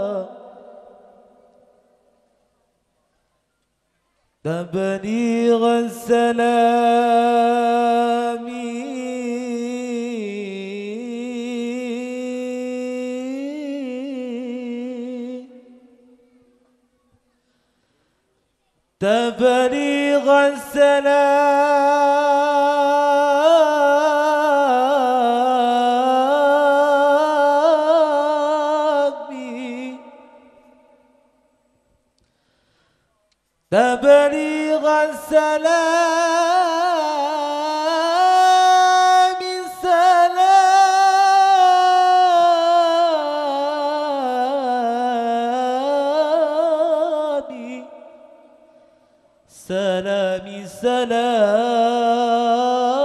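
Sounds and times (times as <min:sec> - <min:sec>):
man singing into microphone: 0:00.0 - 0:02.0, 0:04.4 - 0:16.4, 0:19.0 - 0:31.2, 0:33.7 - 0:48.6, 0:49.5 - 0:53.0.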